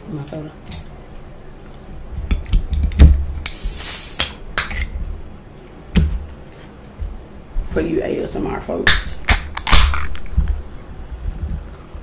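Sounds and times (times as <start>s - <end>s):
soda can opening crack: 2.5s - 5.0s, 8.9s - 10.3s
gas hissing: 3.4s - 4.4s.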